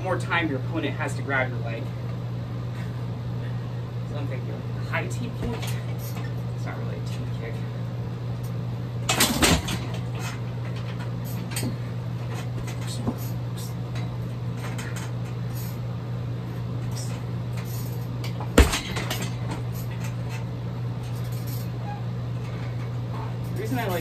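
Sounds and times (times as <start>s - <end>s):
kicks thudding on heavy bag: 18.5s - 19.3s.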